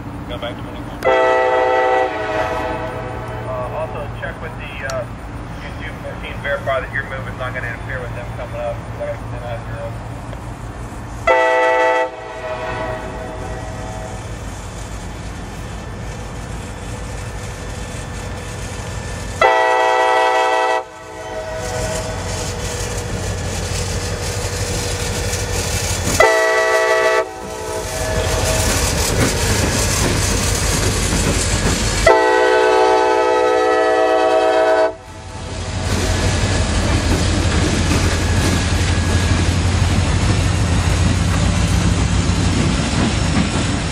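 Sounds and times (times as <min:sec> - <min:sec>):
low rumble of locomotives: 0:00.0 - 0:43.9
locomotive air horn blasts: 0:01.0 - 0:03.7, 0:11.2 - 0:14.3, 0:19.4 - 0:22.4, 0:26.1 - 0:28.8, 0:32.0 - 0:35.2.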